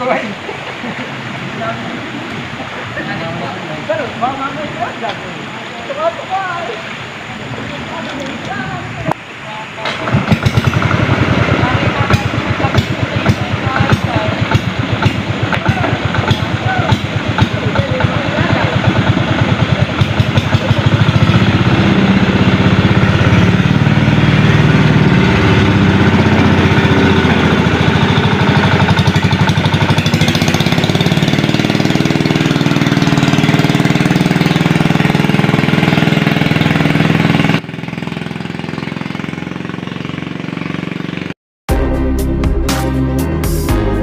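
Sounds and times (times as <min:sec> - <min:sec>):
small boat engine knocking: 0:09.9 - 0:41.3.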